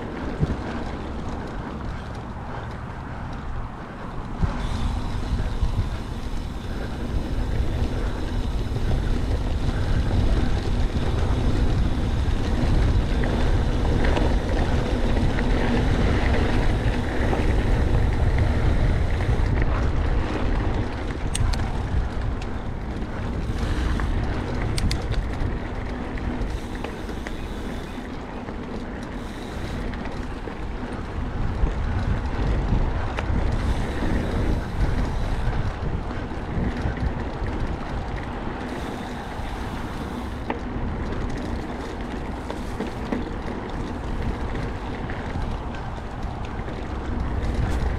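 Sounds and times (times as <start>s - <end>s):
mountain bike rolling on dirt: 0.0s - 47.9s
wind buffeting microphone: 0.0s - 47.9s
sharp clicks: 24.7s - 25.2s.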